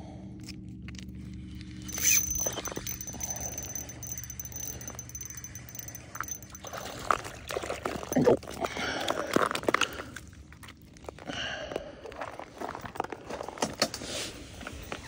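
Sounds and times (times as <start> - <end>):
water splashing and sloshing: 6.0 - 13.6
fish flopping on slushy ice: 6.3 - 13.5.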